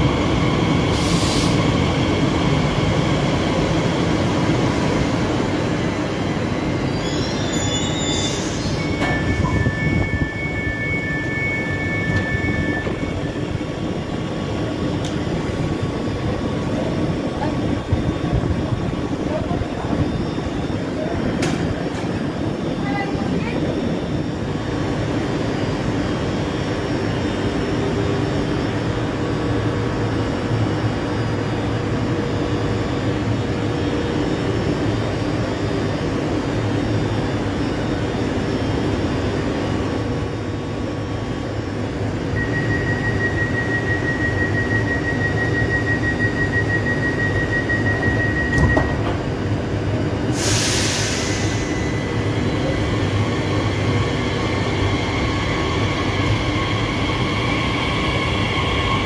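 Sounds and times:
air release hiss: 0:50.3 - 0:51.8.

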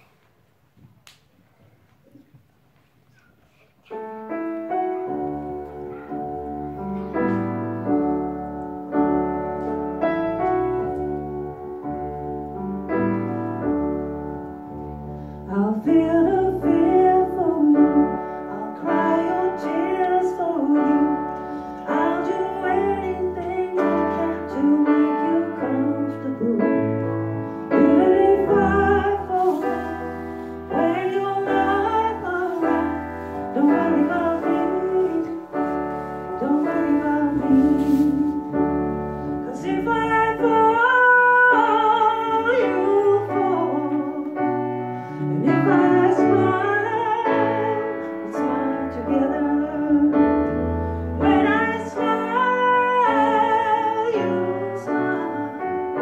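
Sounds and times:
piano chords: 0:03.8 - 0:56.0
woman singing: 0:15.4 - 0:50.6, 0:51.2 - 0:56.0.

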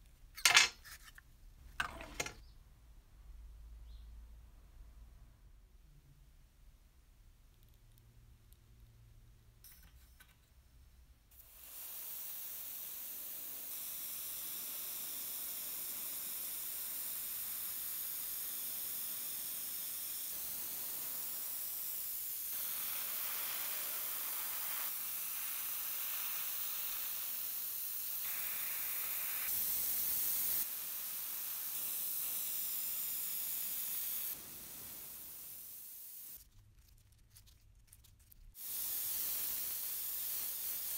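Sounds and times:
spray gun hissing: 0:11.4 - 0:36.4, 0:38.6 - 0:40.9.

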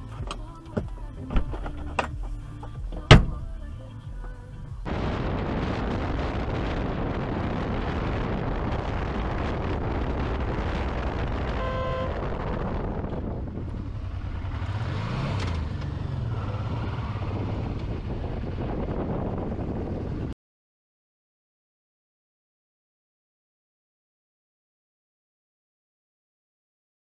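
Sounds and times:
wind rushing: 0:04.8 - 0:20.4
motorcycle engine: 0:08.4 - 0:20.3
horn: 0:11.5 - 0:12.4.

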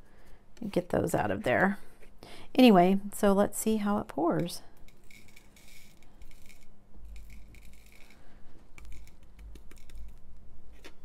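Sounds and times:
small plastic beads sliding out: 0:04.8 - 0:10.2.

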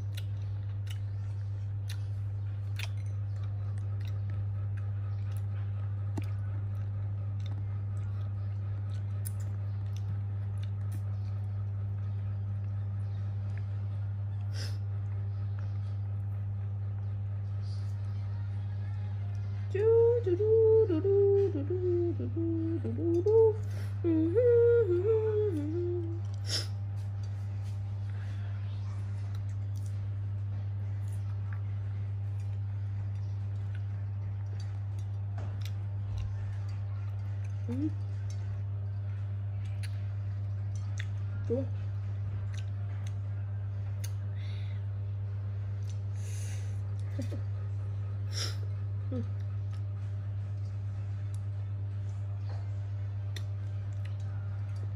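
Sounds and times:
clicks and smacks of eating fruit: 0:00.0 - 0:18.4, 0:25.5 - 0:44.4, 0:45.7 - 0:46.1, 0:48.4 - 0:54.9
steady low hum: 0:00.0 - 0:54.9
woman humming a slow tune: 0:19.5 - 0:26.8, 0:37.6 - 0:38.2, 0:41.3 - 0:41.9, 0:48.3 - 0:49.6.

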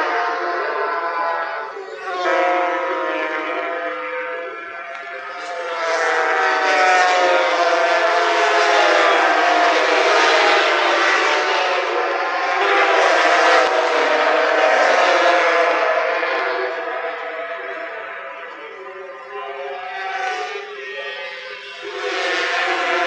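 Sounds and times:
racing motorcycles passing at high revs: 0:05.4 - 0:17.2, 0:21.9 - 0:23.0.

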